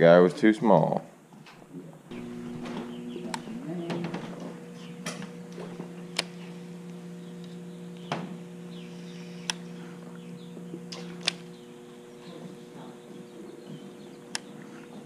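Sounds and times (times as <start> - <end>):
steady low hum: 0.0 - 15.0
faint chirps: 6.0 - 15.0
sharp clicks: 6.1 - 8.2, 9.4 - 9.6, 10.9 - 11.6.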